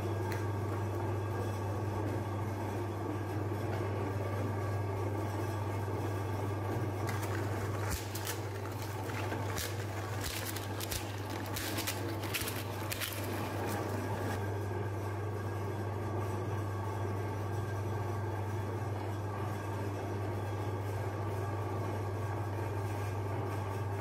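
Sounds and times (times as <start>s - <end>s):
meat grinder motor humming: 3.8s - 14.5s
cracks and crunches of grinding: 7.0s - 14.4s.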